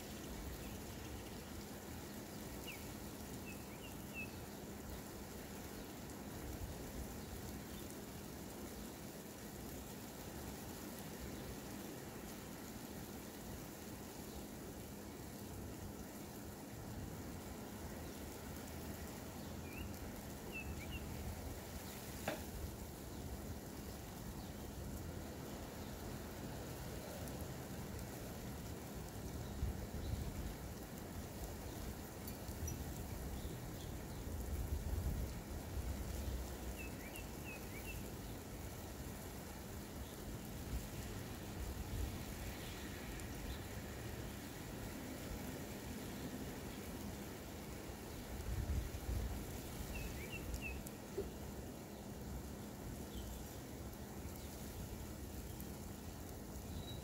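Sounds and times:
steady rain falling: 0.0 - 57.0
bird chirping: 2.2 - 4.6, 19.4 - 21.2, 36.6 - 38.4, 49.8 - 52.0, 56.7 - 57.0.

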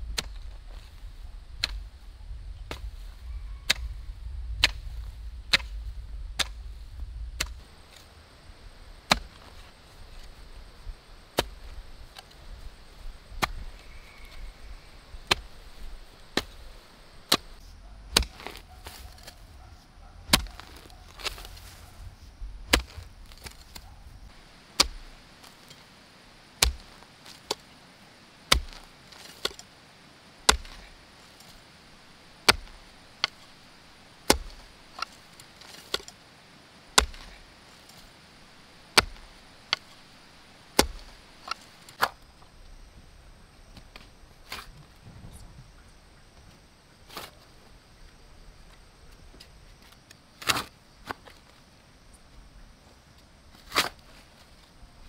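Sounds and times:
hoe chopping into soil: 0.1 - 1.0, 1.6 - 1.9, 2.7 - 3.0, 4.6 - 5.8, 6.4 - 6.8, 7.4 - 8.1, 9.0 - 10.4, 11.3 - 12.5, 13.3 - 14.4, 15.2 - 19.7, 20.3 - 22.0, 22.7 - 25.9, 26.6 - 27.8, 28.5 - 29.7, 30.4 - 31.6, 32.4 - 36.2, 36.9 - 38.2, 38.8 - 42.3, 43.8 - 44.8, 47.1 - 47.4, 50.4 - 51.4, 53.5 - 54.2.

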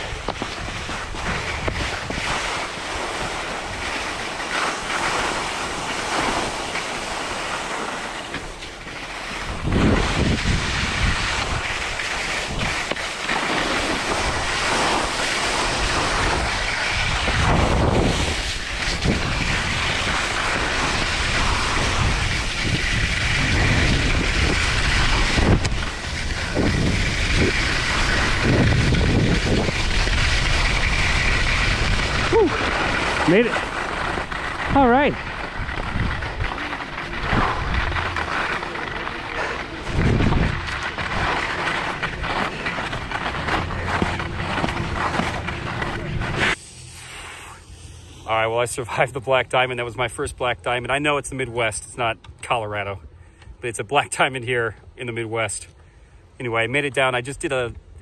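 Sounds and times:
wind buffeting microphone: 0.0 - 13.0, 13.6 - 46.6
skis scraping over snow: 0.0 - 53.0.

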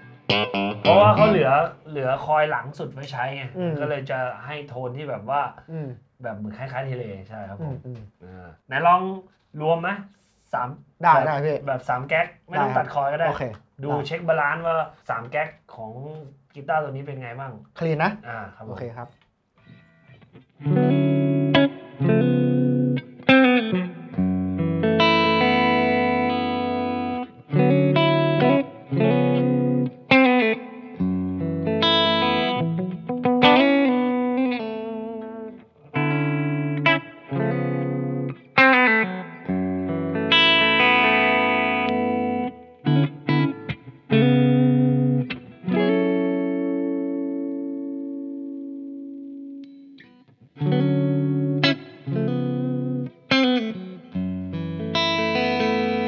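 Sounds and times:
clean electric guitar: 0.0 - 4.3, 19.1 - 56.0.

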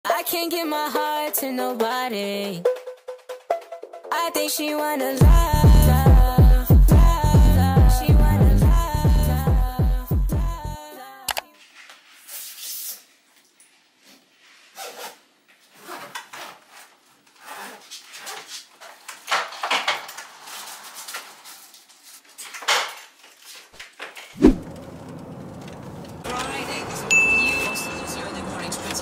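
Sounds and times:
rustling: 11.5 - 26.3.

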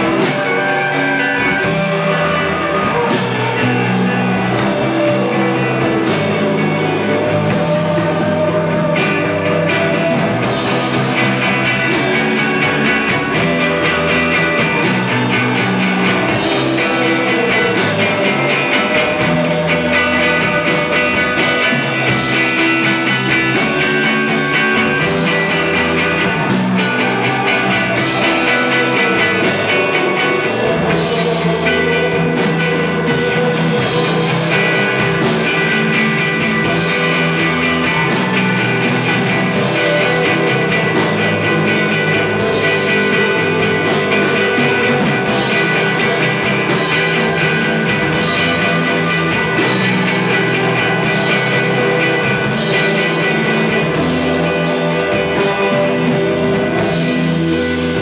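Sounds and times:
drum kit: 0.0 - 58.0
electric guitars: 0.0 - 58.0.

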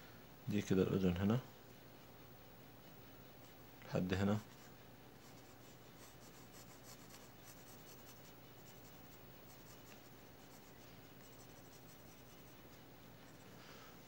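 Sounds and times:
pencil scratching on paper: 4.4 - 13.4.

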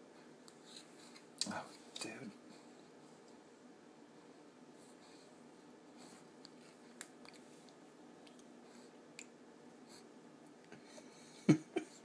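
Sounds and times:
baby mouth clicks and smacks: 6.4 - 8.5, 9.1 - 9.4.

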